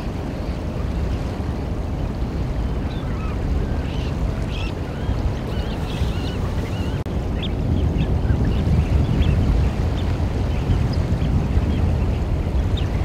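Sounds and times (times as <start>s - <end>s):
surf: 0.0s - 13.0s
wind on microphone: 0.0s - 13.0s
wavering bird calls: 2.9s - 11.0s.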